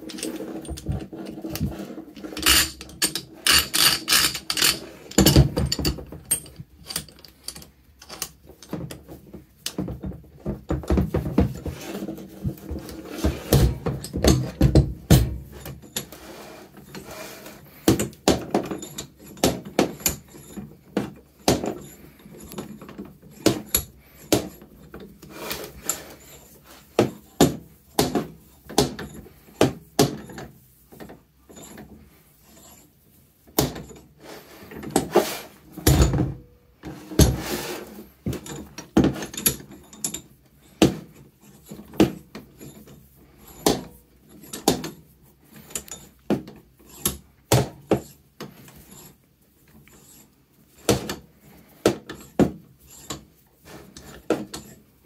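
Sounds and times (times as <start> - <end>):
bench vise handle clanking: 1.5 - 8.4.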